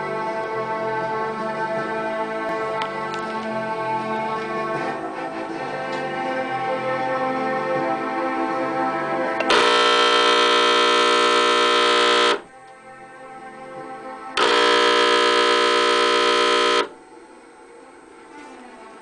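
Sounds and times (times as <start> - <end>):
soft music: 0.0 - 19.0
harsh electric buzz: 9.4 - 12.5, 14.4 - 17.0.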